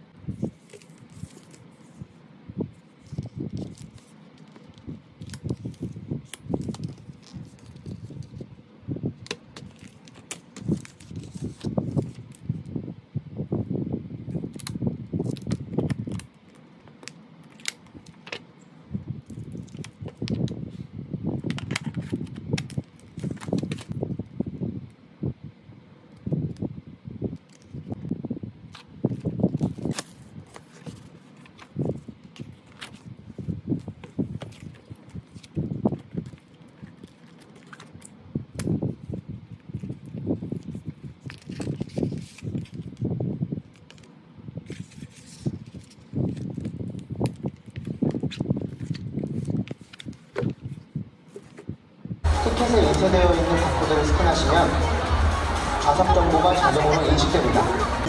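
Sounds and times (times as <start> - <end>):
plastic packaging crinkling: 3.0 - 8.4, 9.2 - 12.4, 19.2 - 20.5.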